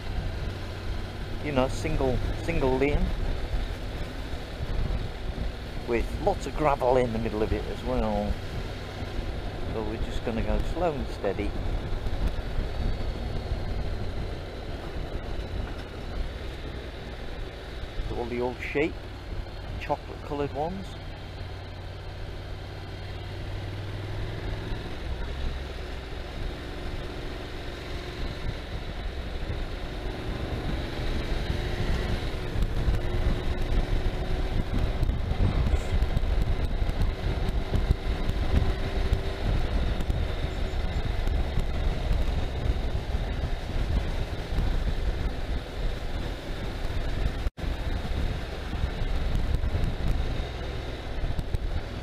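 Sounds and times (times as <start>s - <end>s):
motorcycle engine running: 0.0s - 52.0s
wind on microphone: 28.1s - 52.0s.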